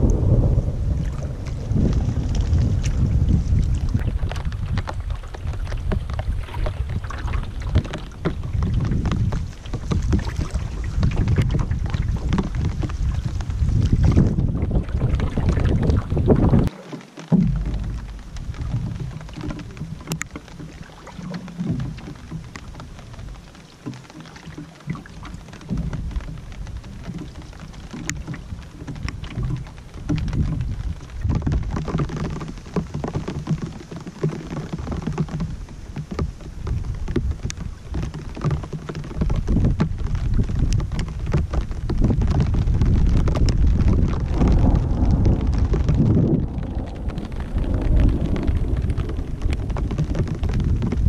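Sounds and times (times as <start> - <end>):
gusting wind rumble: 0.0 - 16.7, 17.3 - 23.4, 25.1 - 34.0, 34.6 - 51.0
raindrops ticking: 0.0 - 51.0.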